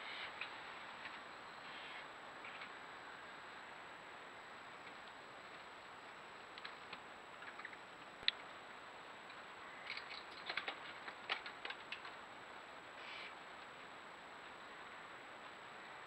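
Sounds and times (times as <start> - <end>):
steady hiss: 0.0 - 16.0.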